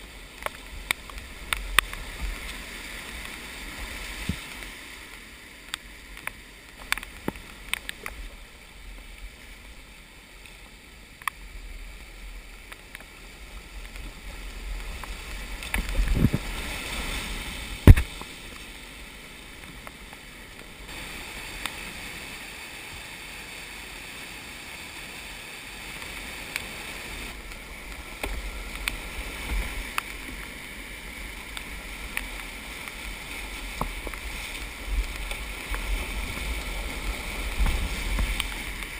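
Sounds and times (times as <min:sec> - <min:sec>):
rushing whitewater: 0:00.0 - 0:38.9
splashes and knocks: 0:14.9 - 0:18.6.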